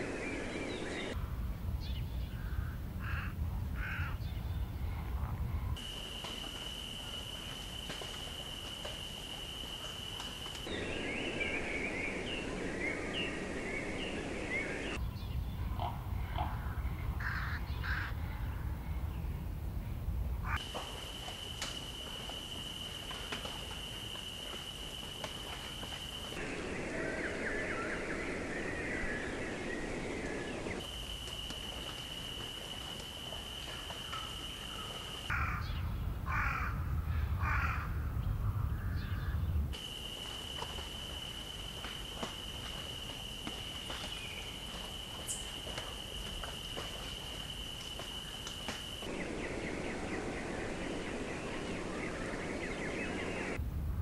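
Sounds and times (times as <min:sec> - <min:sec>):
low rumble: 0:35.4 - 0:39.7
high whistling bird calls: 0:41.2 - 0:53.6.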